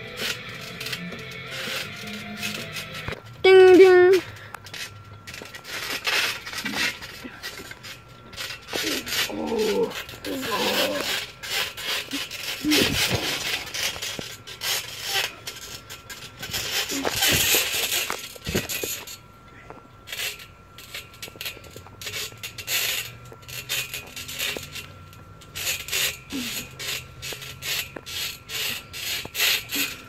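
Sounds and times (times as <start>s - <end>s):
scuffs and bounces on trampoline: 0.0s - 19.2s, 20.1s - 30.0s
person grunting: 8.9s - 11.1s.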